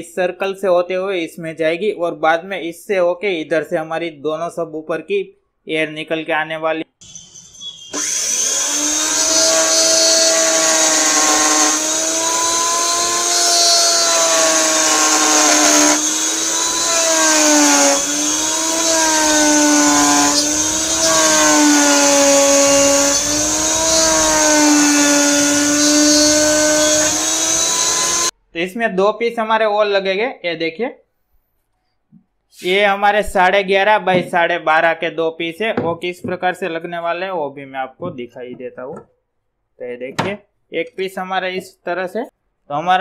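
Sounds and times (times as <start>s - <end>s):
electric router cutting wood: 7.0s - 28.3s.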